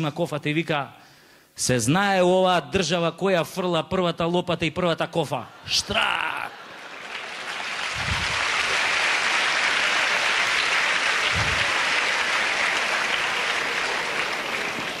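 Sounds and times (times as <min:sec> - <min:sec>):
audience applauding: 0:05.7 - 0:15.0
dull low thumps: 0:08.0 - 0:08.4, 0:11.3 - 0:11.7.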